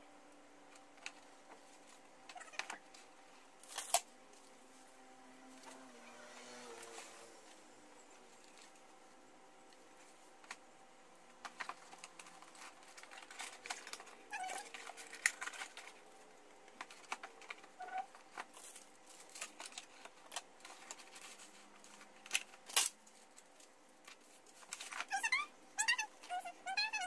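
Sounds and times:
plastic sleeve rustling: 11.3 - 26.6.

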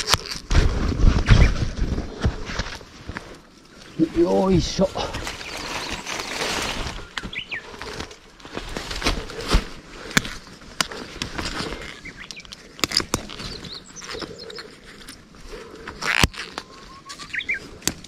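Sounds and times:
twigs snapping: 0.0 - 0.6, 4.8 - 18.0
undergrowth rustling and crackling: 0.0 - 18.0
small birds chirping: 3.6 - 8.3, 11.0 - 17.8.

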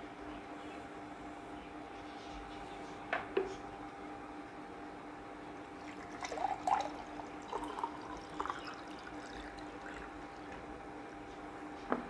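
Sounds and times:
water pouring into glass: 5.8 - 10.1.

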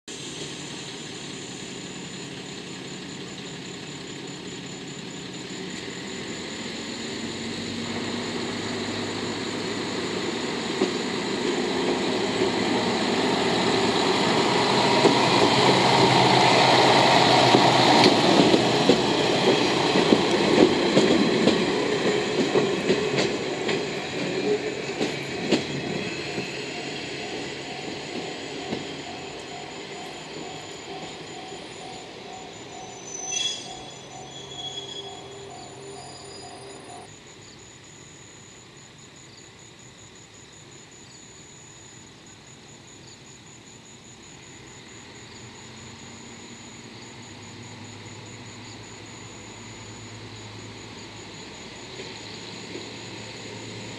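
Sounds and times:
train wheels clacking on rail joints: 10.5 - 37.1.

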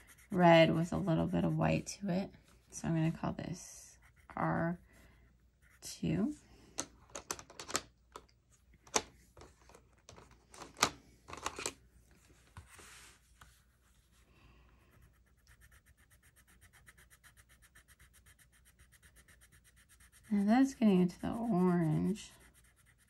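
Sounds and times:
pencil scribbling on paper: 0.0 - 2.2, 3.0 - 5.0, 5.6 - 6.3, 14.9 - 23.0.

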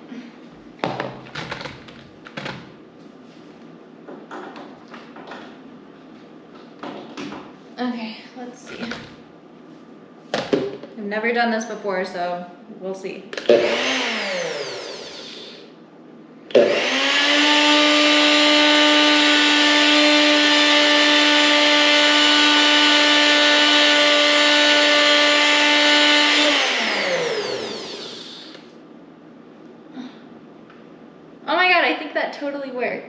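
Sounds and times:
blender motor running: 13.4 - 15.7, 16.5 - 28.7.

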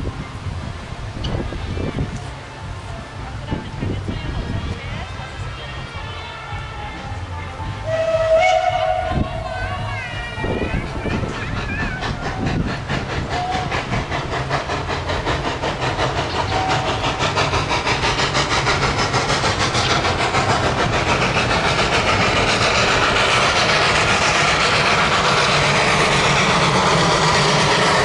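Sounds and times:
steam locomotive chuffing: 0.0 - 28.0.

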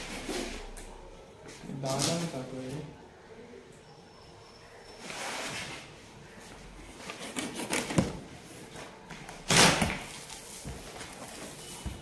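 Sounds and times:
cardboard tearing: 9.5 - 10.3.

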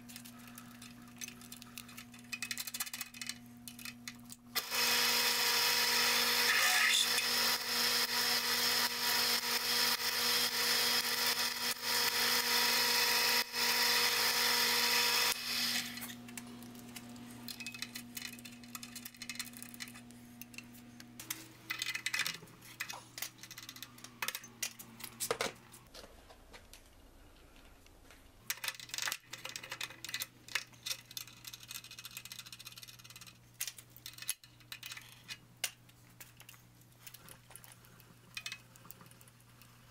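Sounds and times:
drill cutting into metal: 4.6 - 16.1
drill motor running: 4.6 - 16.2
clatter of chips and tools: 16.8 - 25.4.

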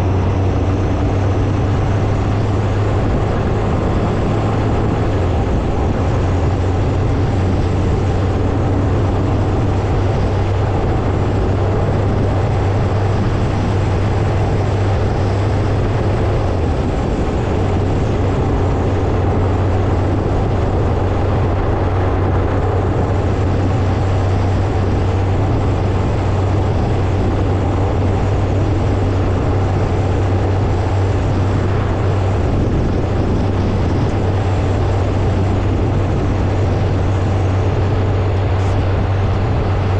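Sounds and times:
motorcycle engine drone: 0.0 - 39.9
rushing noise: 0.0 - 39.9.

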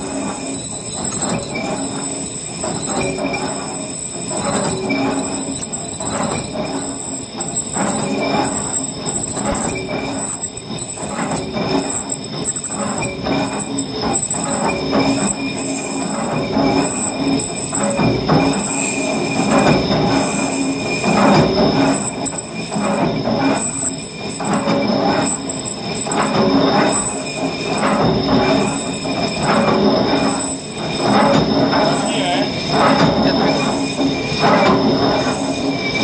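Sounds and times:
high-pitched ringing of cutting tool: 0.0 - 19.4, 30.2 - 34.4.

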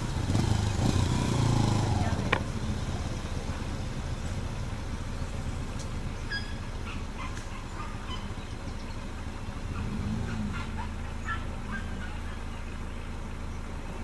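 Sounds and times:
vehicle engine idling: 0.0 - 14.0
forest bird chirps: 5.0 - 14.0.

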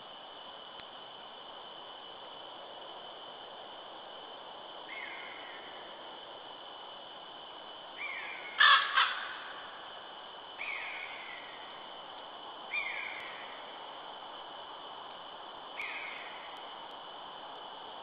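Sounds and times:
faint high-pitched whine: 0.0 - 18.0
bird calling: 8.0 - 9.7, 10.6 - 11.6, 12.7 - 13.4.

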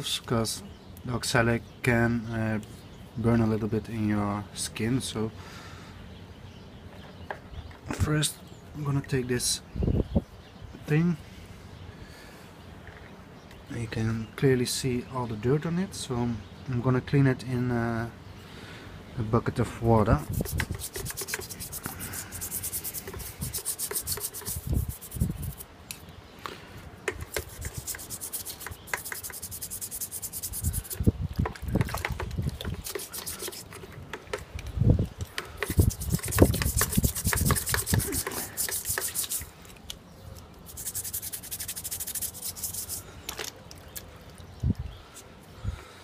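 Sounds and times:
toothbrush scrubbing metal in water: 20.2 - 25.6, 27.1 - 31.1, 31.8 - 33.9, 35.6 - 39.5, 40.7 - 43.0.

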